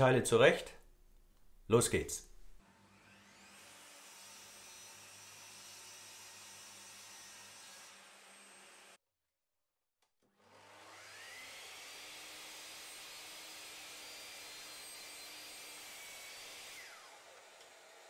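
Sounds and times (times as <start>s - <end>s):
mitre saw motor whine: 2.7s - 9.0s, 10.6s - 13.1s, 13.8s - 18.0s.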